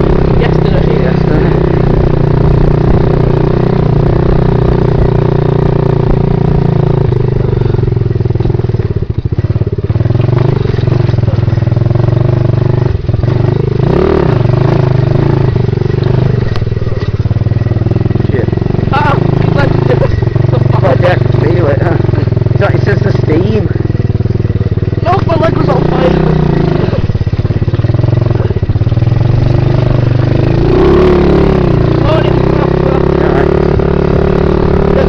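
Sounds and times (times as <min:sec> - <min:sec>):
pit bike engine revving: 0:00.0 - 0:35.0.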